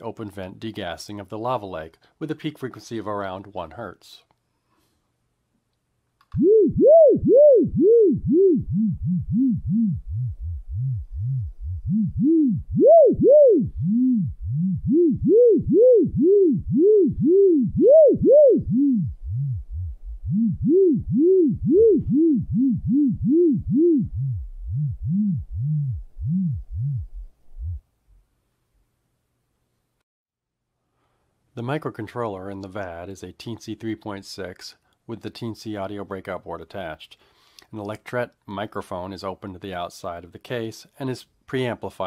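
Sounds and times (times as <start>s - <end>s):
low sine tone swooping in pitch: 6.3s - 27.8s.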